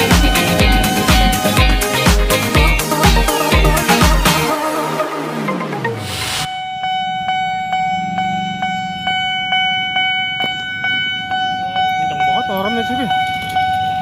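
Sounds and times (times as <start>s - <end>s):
level crossing warning alarm: 0.0s - 2.1s, 6.5s - 14.0s
electronic intro jingle: 0.0s - 7.0s.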